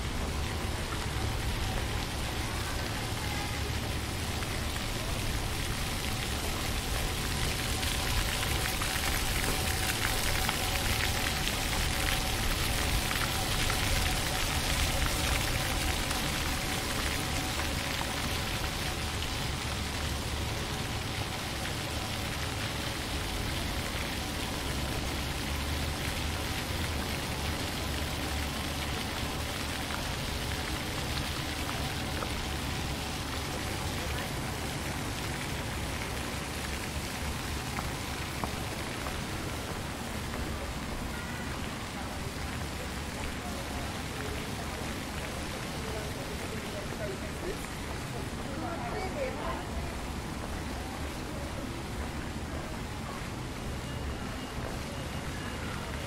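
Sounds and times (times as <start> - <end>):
steady rain falling: 0.0 - 56.0.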